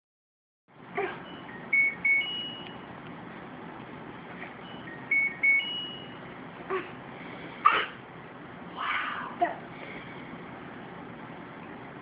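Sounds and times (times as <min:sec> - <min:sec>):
electronic beep tune: 0:01.2 - 0:02.8, 0:04.6 - 0:06.2.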